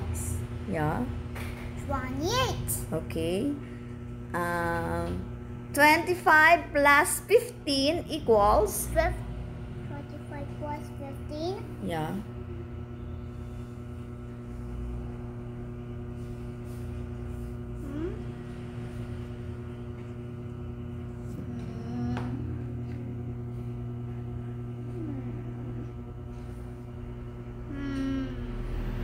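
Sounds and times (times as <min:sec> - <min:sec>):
steady electrical hum: 0:00.0 - 0:29.0
child humming: 0:17.8 - 0:18.5, 0:21.4 - 0:22.7, 0:24.9 - 0:26.0, 0:27.6 - 0:28.9.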